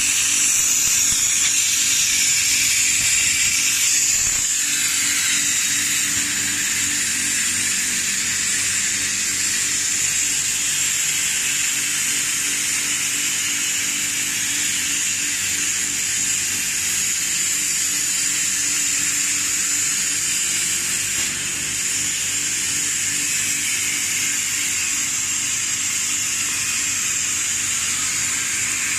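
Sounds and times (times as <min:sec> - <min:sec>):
machine humming and hissing: 0:00.0 - 0:28.9.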